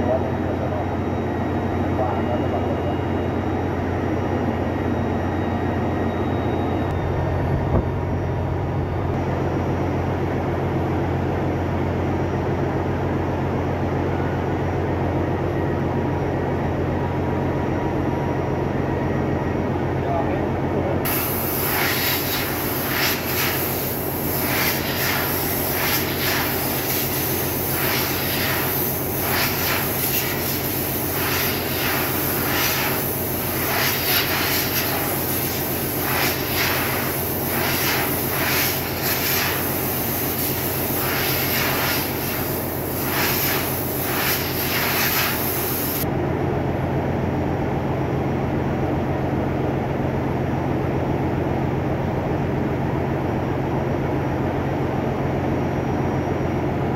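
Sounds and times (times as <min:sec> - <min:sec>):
engine room machinery drone: 0:00.0 - 0:56.9
compressed air blow gun hissing: 0:21.1 - 0:46.0.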